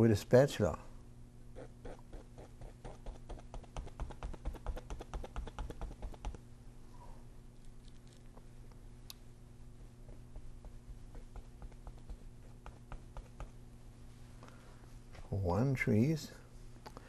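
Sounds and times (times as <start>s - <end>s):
palette knife tapping on canvas: 2.9s - 6.4s.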